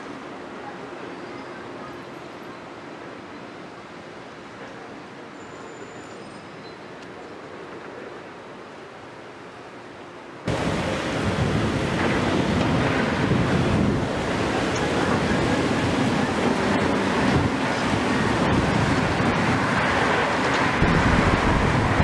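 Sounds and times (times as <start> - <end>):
excavators rumbling: 10.5 - 22.0
wind buffeting microphone: 10.5 - 22.0.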